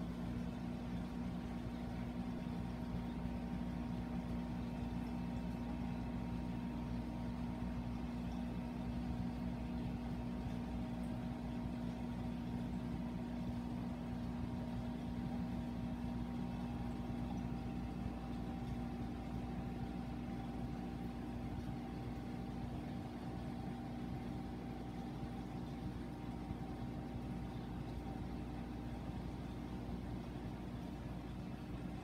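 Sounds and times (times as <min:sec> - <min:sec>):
aquarium pumps humming: 0:00.0 - 0:32.0.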